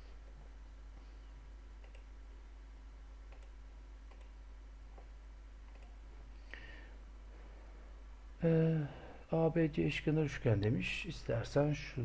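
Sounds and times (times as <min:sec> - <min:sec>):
low hum and room hiss: 0:00.0 - 0:12.0
faint clicks: 0:01.8 - 0:02.1, 0:03.3 - 0:06.6.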